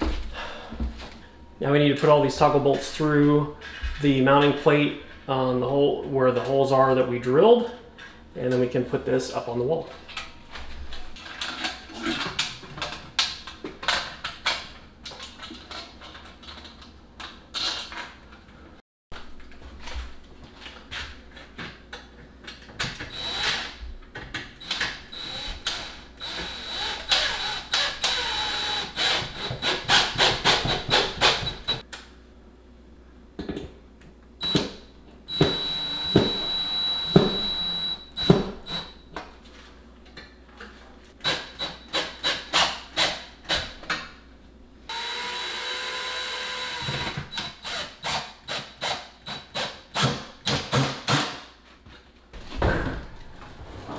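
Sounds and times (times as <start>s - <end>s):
impact driver whining: 23.0s - 23.8s, 24.6s - 31.8s, 34.4s - 39.0s, 44.9s - 51.4s.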